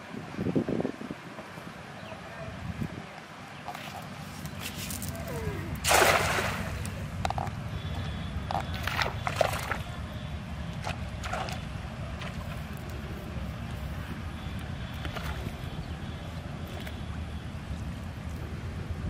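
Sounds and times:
small splashes: 3.7s - 7.1s, 8.5s - 10.0s, 10.8s - 12.9s, 14.8s - 15.8s
net splashing into water: 5.8s - 7.0s, 8.7s - 9.9s.

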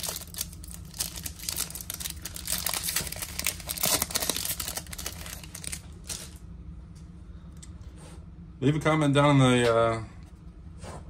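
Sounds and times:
card pack wrapper crinkling: 0.0s - 6.4s.

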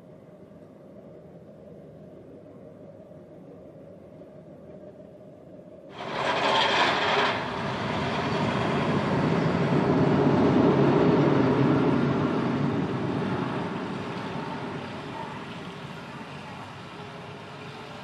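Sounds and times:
roller coaster rumble: 5.9s - 18.0s.

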